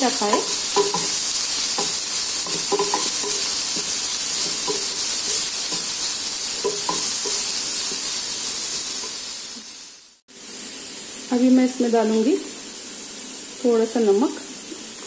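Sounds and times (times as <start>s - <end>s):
vegetables sizzling in oil: 0.0s - 15.0s
wooden spatula scraping pan: 0.2s - 9.2s.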